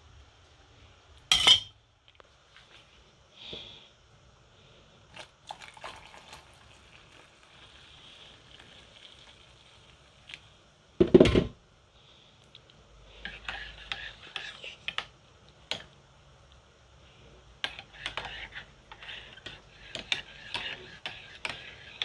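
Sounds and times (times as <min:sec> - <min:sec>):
hot water trickling into mug: 0:05.1 - 0:10.5.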